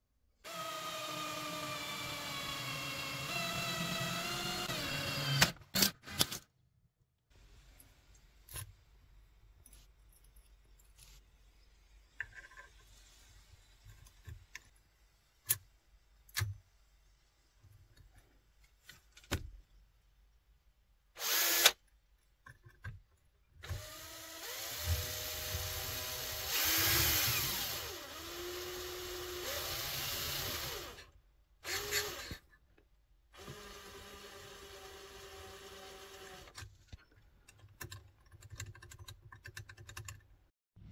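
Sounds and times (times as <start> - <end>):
small electric drill running: 0.5 - 5.5, 21.2 - 21.8, 23.7 - 31.0, 31.6 - 32.4, 33.4 - 36.6.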